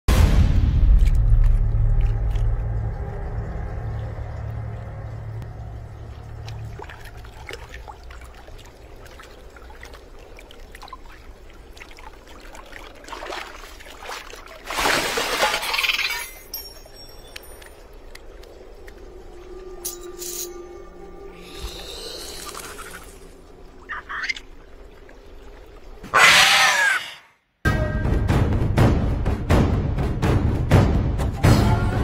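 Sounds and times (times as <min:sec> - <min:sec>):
low rumble: 0:00.1 - 0:08.8
water splashing and pouring: 0:00.1 - 0:26.5
water dripping and trickling: 0:00.8 - 0:26.2.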